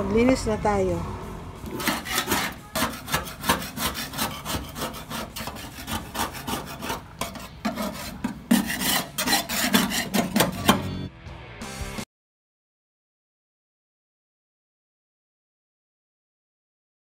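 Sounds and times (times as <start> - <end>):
scrubbing rusty steel floor: 1.6 - 11.1.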